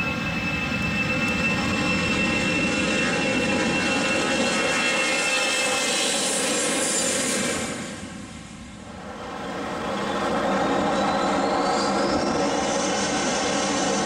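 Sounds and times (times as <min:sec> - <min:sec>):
jet engines passing: 0:00.0 - 0:14.0
high fan whine: 0:07.6 - 0:14.0.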